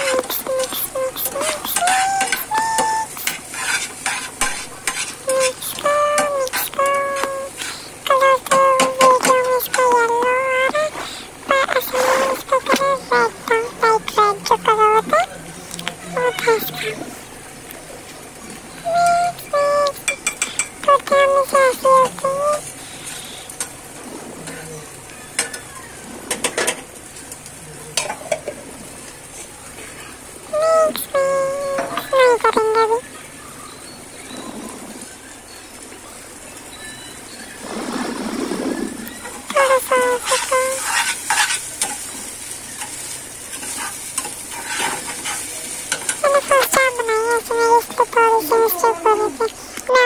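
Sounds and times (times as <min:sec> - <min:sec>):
noodles frying: 0:00.0 - 0:50.0
metal spoon scraping a pan: 0:03.2 - 0:05.7, 0:40.2 - 0:46.2.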